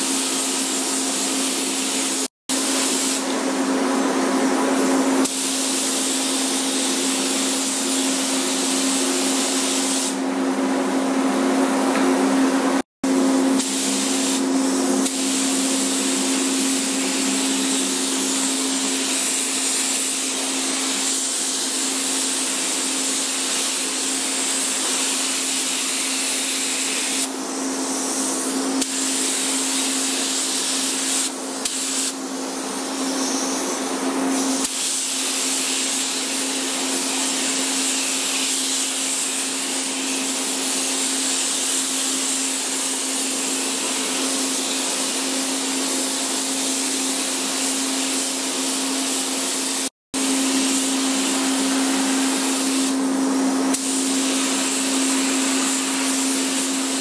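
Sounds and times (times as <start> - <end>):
spray gun hissing: 0.0 - 3.4, 5.2 - 10.2, 13.4 - 32.2, 34.2 - 57.0
steady hum: 9.1 - 20.6.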